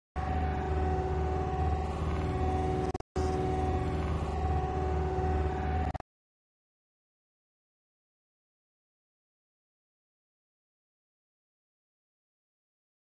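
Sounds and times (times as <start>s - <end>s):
boat motor rumbling: 0.2s - 6.0s.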